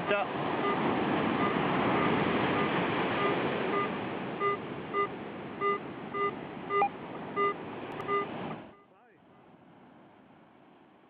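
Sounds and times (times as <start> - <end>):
surf: 0.0 - 10.4
wind: 0.0 - 11.0
metal detector beeping: 1.4 - 9.0.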